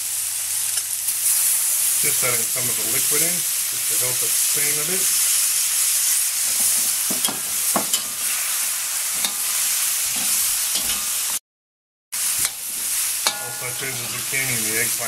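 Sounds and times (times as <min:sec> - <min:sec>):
vegetables sizzling in a wok: 0:00.0 - 0:11.4, 0:12.2 - 0:15.0
utensil scraping and knocking wok: 0:04.5 - 0:11.4, 0:12.2 - 0:15.0.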